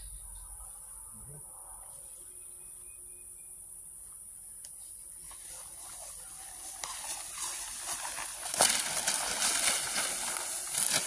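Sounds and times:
footsteps: 4.8s - 11.0s
grass swishing and crunching: 5.2s - 11.0s.

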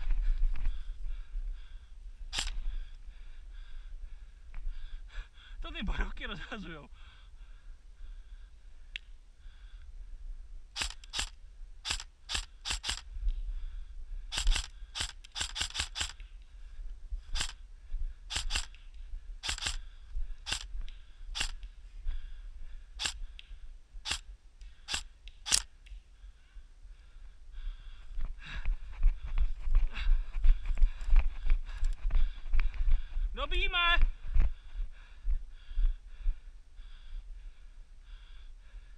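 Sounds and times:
airsoft rifle shots: 10.8s - 13.0s, 14.3s - 16.2s, 17.4s - 17.6s, 18.3s - 18.7s, 19.4s - 19.8s, 20.5s - 20.7s, 21.4s - 21.6s, 24.9s - 25.7s.

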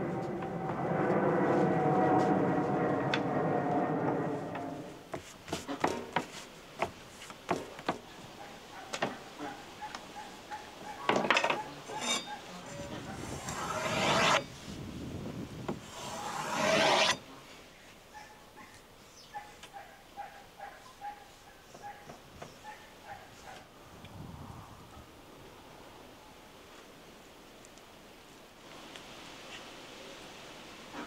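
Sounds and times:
steady rushing noise: 0.0s - 5.1s.

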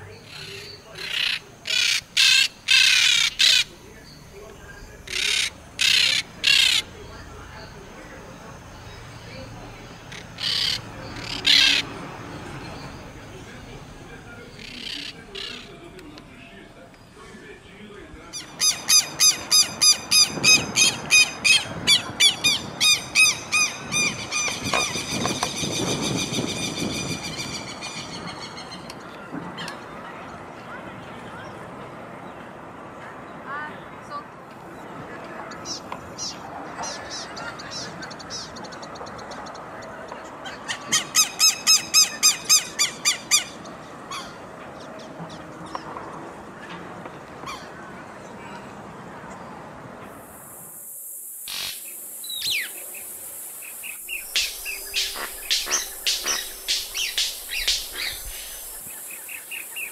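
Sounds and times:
bird alarm calls: 0.1s - 4.3s, 4.9s - 7.1s, 10.0s - 12.0s, 18.4s - 28.9s, 51.5s - 59.9s
faint bird calls: 51.5s - 59.9s.

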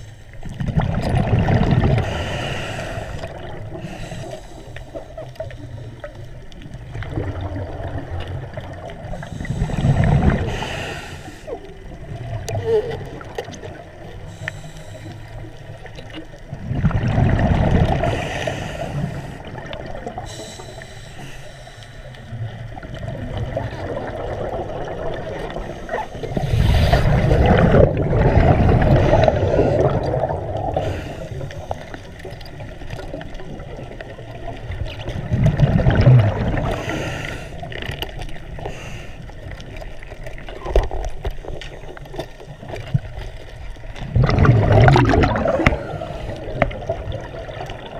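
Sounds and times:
bubbling underwater exhalations: 0.5s - 4.0s, 6.8s - 13.9s, 16.5s - 20.4s, 22.4s - 31.8s, 33.4s - 37.8s, 44.0s - 47.9s
low regulator hiss: 14.2s - 15.8s, 18.0s - 22.3s.

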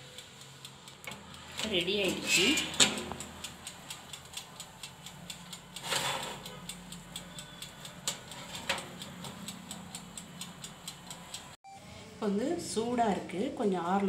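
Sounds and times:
mechanical timer ticking: 0.0s - 11.6s
sharp clicks: 0.0s - 11.6s
rustling scrape: 5.8s - 6.4s.

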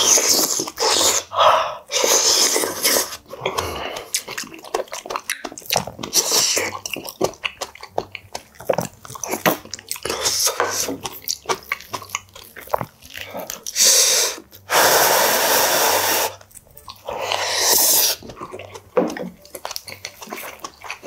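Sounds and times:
breathy blowing and slurping: 0.0s - 4.2s, 13.7s - 16.4s, 17.0s - 18.4s
wet chewing and lip smacks: 2.0s - 14.7s, 16.3s - 21.0s.

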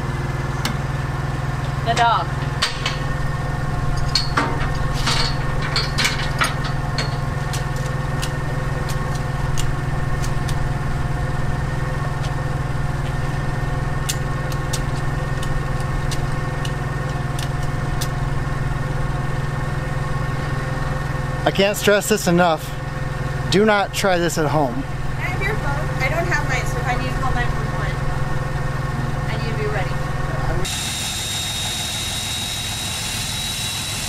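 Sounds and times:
heavy equipment engine idling: 0.0s - 34.0s.

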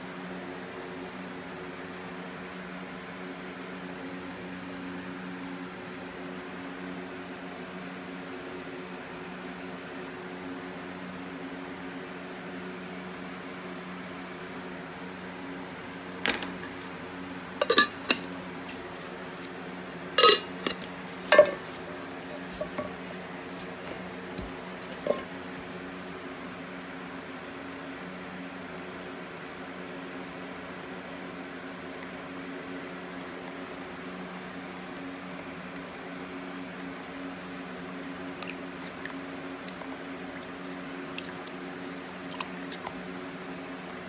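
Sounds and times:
low machine hum: 0.0s - 44.0s
metal cans clinking and knocking: 17.6s - 18.3s, 20.2s - 21.7s.

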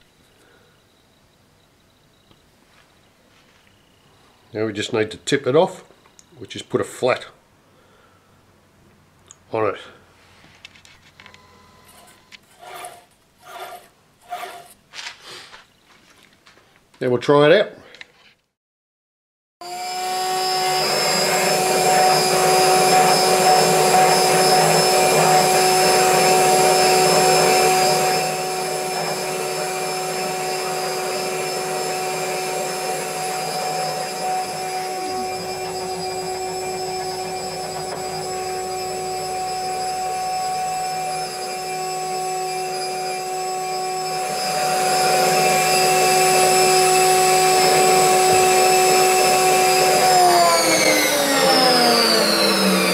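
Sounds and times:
cnc spindle whining: 11.2s - 14.8s, 19.6s - 52.9s
bit cutting plastic: 11.9s - 14.8s.

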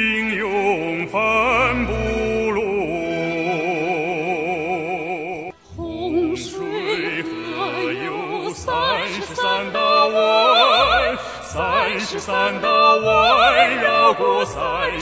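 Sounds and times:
man singing operatic vibrato: 0.0s - 5.5s
musical accompaniment: 0.0s - 15.0s
woman singing operatic vibrato: 5.7s - 15.0s.

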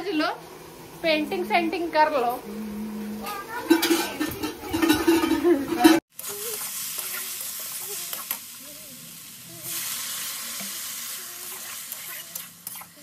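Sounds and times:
okra frying and sizzling: 0.0s - 13.0s
spatula stirring and scraping: 11.4s - 13.0s.

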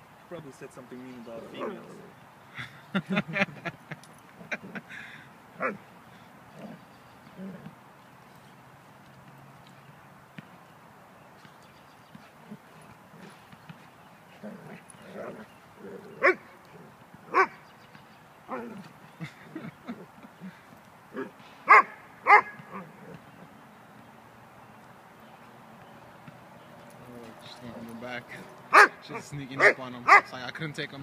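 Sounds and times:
dogs barking while play-fighting: 5.6s - 5.9s, 12.2s - 17.7s, 20.4s - 23.4s, 28.6s - 30.3s.

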